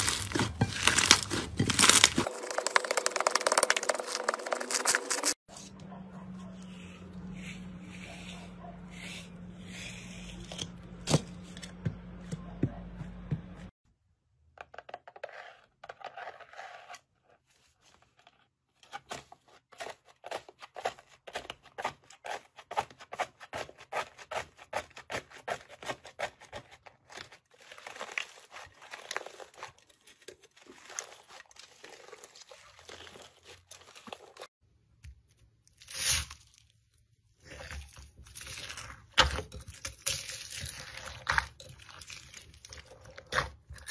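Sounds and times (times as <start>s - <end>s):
slime peeling: 0.0s - 2.6s
slime squishing: 0.0s - 5.3s, 37.3s - 43.9s.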